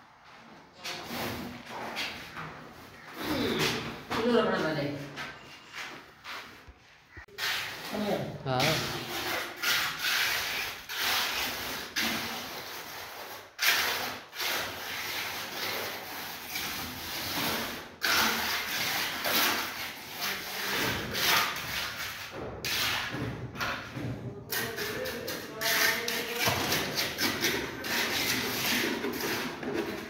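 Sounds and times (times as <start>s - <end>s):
trowel scraping wet concrete: 7.1s - 30.0s.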